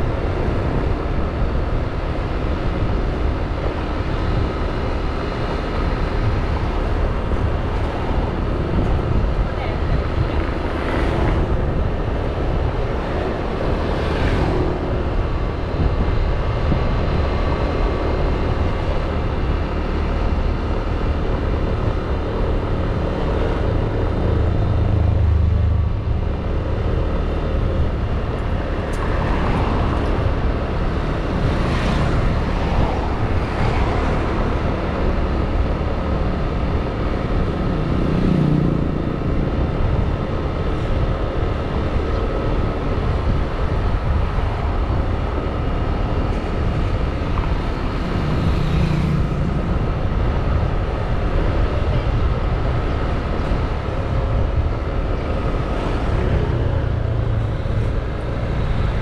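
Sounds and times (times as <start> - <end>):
scooter engine and road rumble: 0.0 - 59.0
vehicles passing by: 0.0 - 59.0.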